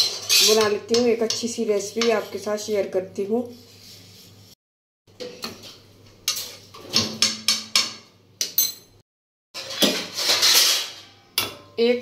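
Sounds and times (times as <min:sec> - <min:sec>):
steel spoon clinking on pots: 0:00.0 - 0:02.4, 0:07.2 - 0:09.0.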